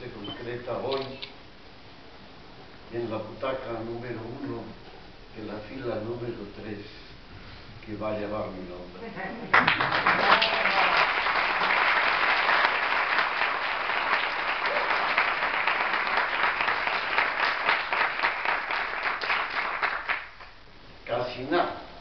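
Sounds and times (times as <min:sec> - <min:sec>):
audience applauding: 0:09.5 - 0:20.6.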